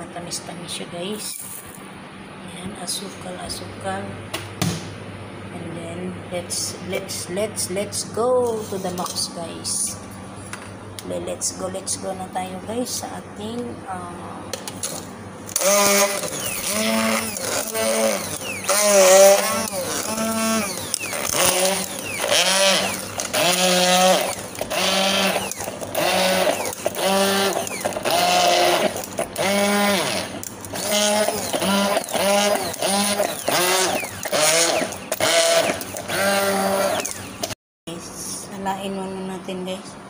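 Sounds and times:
blender motor pulsing: 0:14.9 - 0:37.6.

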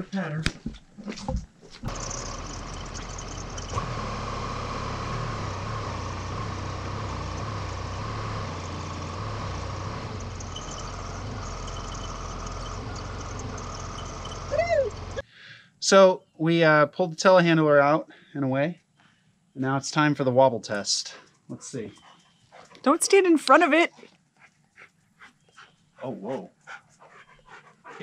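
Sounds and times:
engine humming: 0:01.5 - 0:15.2.

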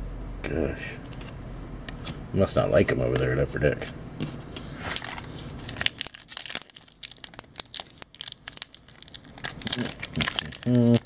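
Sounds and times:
wrapper crinkling and crackling: 0:04.9 - 0:11.0.

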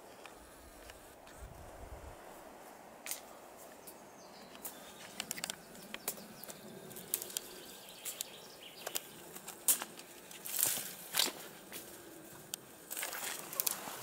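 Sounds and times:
footsteps on dry forest litter: 0:00.0 - 0:14.0
twigs snapping underfoot: 0:03.0 - 0:14.0.

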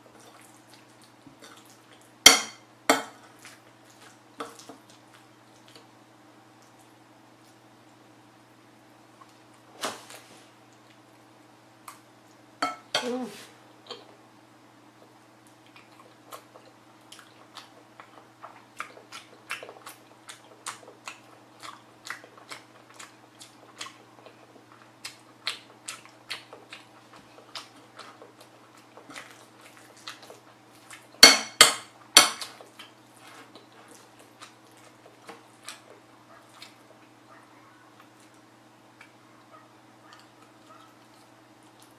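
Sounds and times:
wet chewing clicks: 0:15.0 - 0:31.2, 0:32.0 - 0:41.9.

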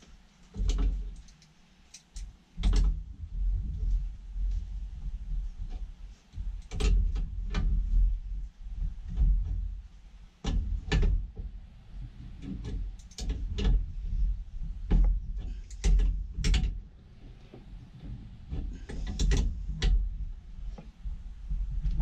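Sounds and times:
low steady rumble: 0:00.0 - 0:22.0
sharp knocks and clicks: 0:00.5 - 0:03.0, 0:06.4 - 0:07.9, 0:10.4 - 0:11.6, 0:12.2 - 0:13.9, 0:14.8 - 0:20.0.

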